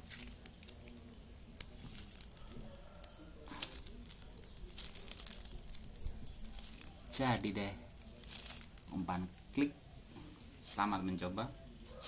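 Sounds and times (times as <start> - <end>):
plastic wrapper crinkling: 0.0 - 9.6.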